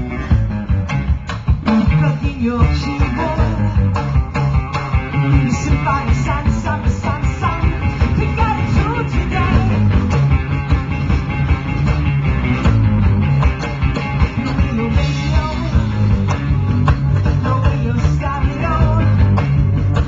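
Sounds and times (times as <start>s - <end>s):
drum kit: 0.0s - 20.0s
electric guitar: 0.0s - 20.0s
woman singing: 1.9s - 3.8s, 5.4s - 9.8s.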